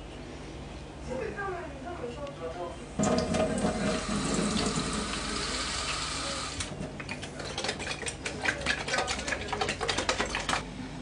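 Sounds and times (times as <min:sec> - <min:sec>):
tap water running into carton: 0:03.0 - 0:10.6.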